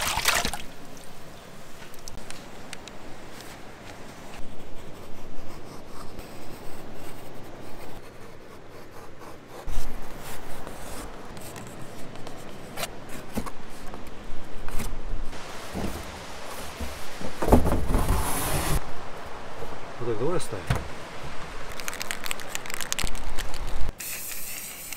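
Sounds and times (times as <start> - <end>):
rubbing and scraping: 14.6 - 18.8
dull low thump: 20.6 - 21.0.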